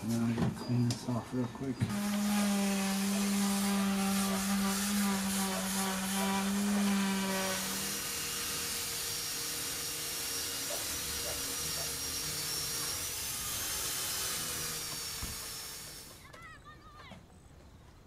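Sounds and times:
electric orbital sander running: 1.9 - 16.2.

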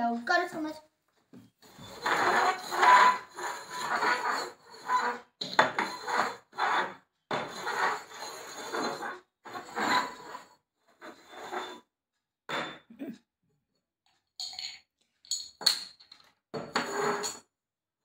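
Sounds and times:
steel tumblers scraping on wood: 1.6 - 11.9, 16.7 - 17.4.

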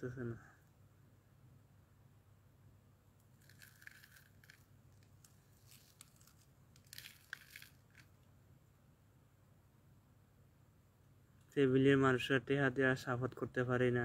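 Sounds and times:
faint low hum: 0.0 - 14.0
soft scratchy crackling: 3.2 - 8.3.

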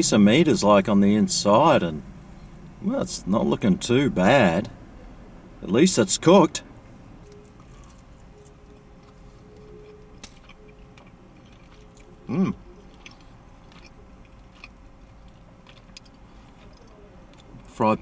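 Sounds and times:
man chewing food: 7.2 - 17.8
man humming briefly: 12.3 - 12.7.

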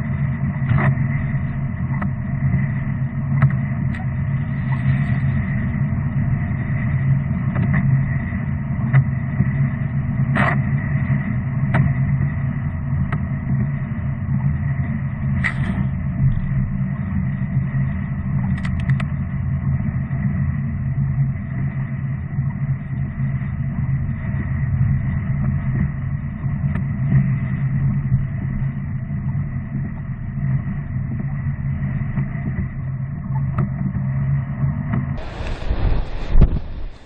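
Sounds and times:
engine and tyres rumbling: 35.0 - 37.0.

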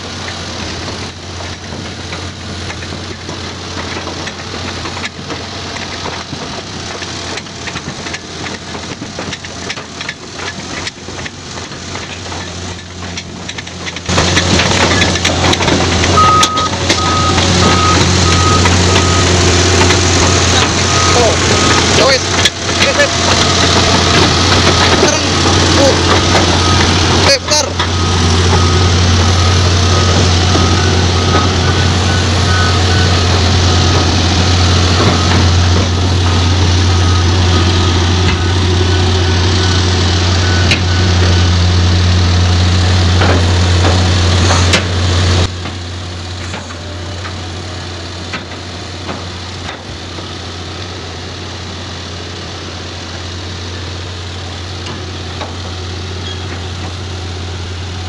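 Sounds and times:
dozer diesel engine droning: 0.0 - 58.0
backup alarm beeping: 16.1 - 41.7.

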